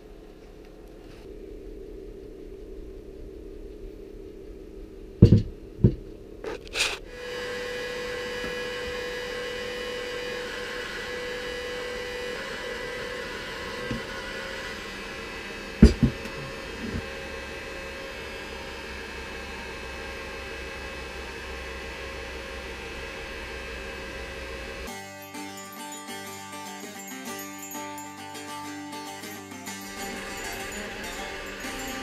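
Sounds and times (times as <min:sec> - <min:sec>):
electric hum with faint whine: 0:00.0 - 0:24.9.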